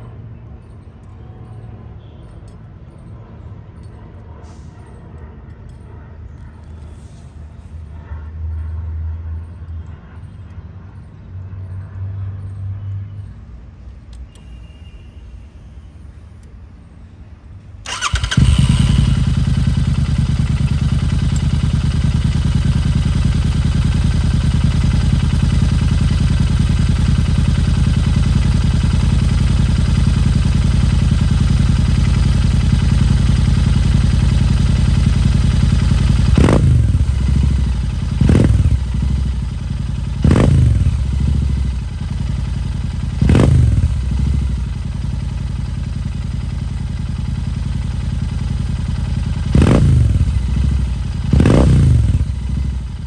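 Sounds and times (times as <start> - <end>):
motorcycle engine starting and idling: 17.8 - 53.0.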